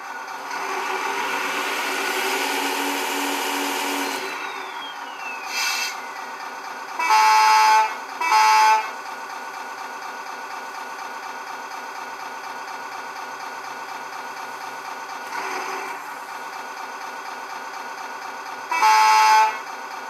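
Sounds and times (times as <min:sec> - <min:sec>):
sampled engine idle: 0:00.0 - 0:00.5, 0:04.2 - 0:07.2, 0:08.8 - 0:18.8
brief hiss: 0:05.3 - 0:06.0
truck horn blasts: 0:07.0 - 0:09.0, 0:18.7 - 0:19.7.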